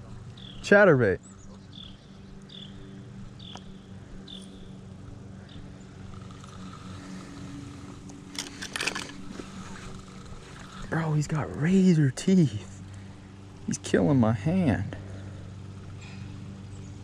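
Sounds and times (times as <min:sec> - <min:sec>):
low mechanical hum: 0:00.0 - 0:17.0
clicks and rustles: 0:08.0 - 0:10.9.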